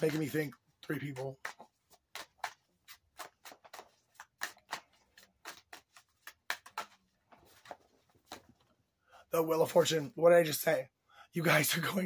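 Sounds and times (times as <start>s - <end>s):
cards being shuffled: 0.0s - 8.7s.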